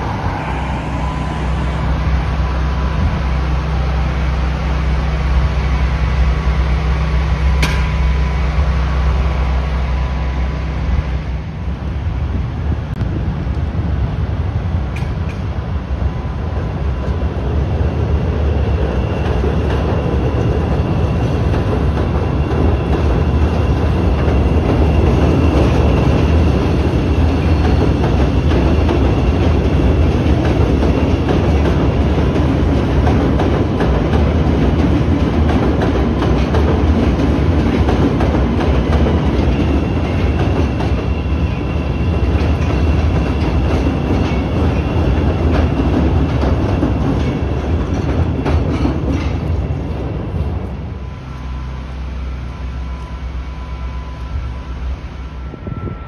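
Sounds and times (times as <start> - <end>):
train rumbling on tracks: 0.0 - 56.0
thin steady whine: 50.4 - 56.0.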